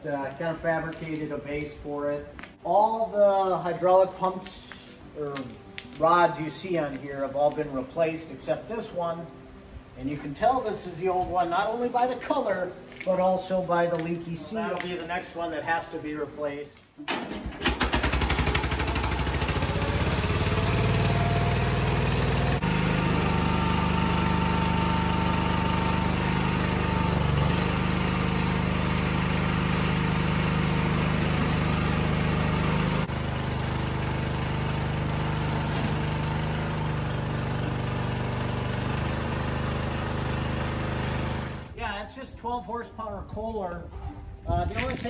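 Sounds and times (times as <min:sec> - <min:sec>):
lawn tractor engine starting: 0:17.0 - 0:41.8.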